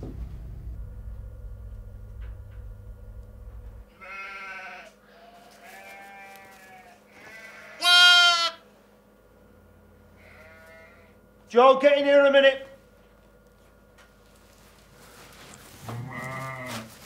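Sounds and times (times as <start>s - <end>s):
low hum: 0.0s - 6.8s
lamb bleating: 3.9s - 8.6s, 10.2s - 11.2s, 15.9s - 17.0s.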